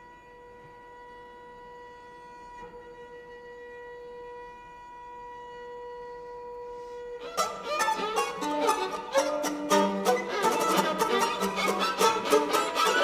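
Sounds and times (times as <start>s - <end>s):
string ensemble playing: 7.2s - 13.0s.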